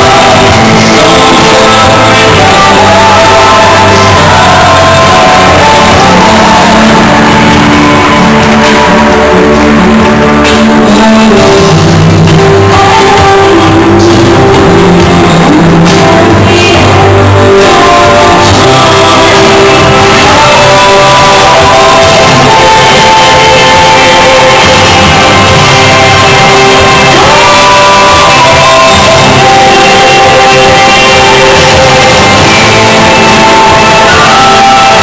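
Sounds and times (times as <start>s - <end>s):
rock music with singing: 0.0s - 35.0s.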